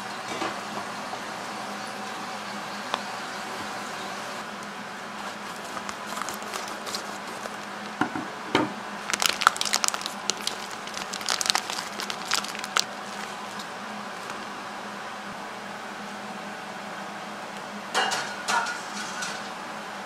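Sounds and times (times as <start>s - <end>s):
plastic bag crinkling: 5.2s - 8.0s, 9.0s - 14.4s.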